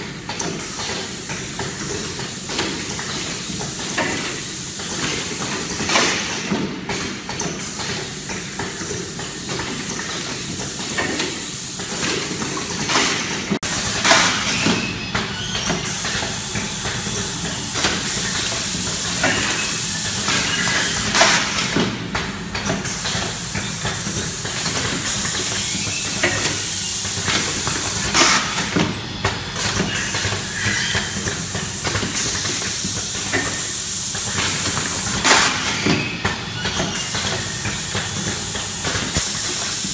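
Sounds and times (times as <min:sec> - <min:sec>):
pneumatic cylinders clacking: 0:00.0 - 0:39.9
steady machine hum: 0:13.6 - 0:29.6.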